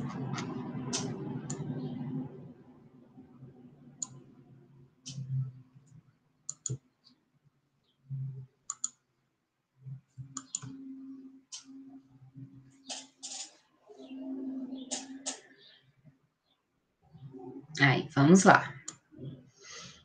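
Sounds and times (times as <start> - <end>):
faint low hum: 0.0 - 20.0
computer mouse clicking: 5.1 - 6.8, 8.7 - 9.0, 10.2 - 10.8.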